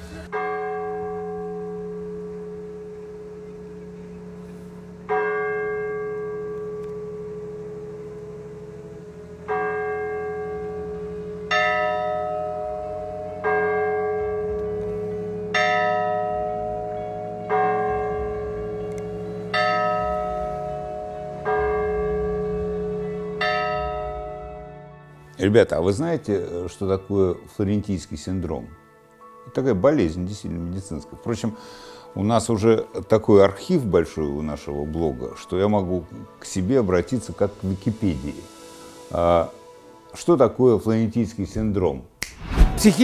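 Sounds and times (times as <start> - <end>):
low steady hum: 0.0 - 26.7
church bells ringing: 0.0 - 42.0.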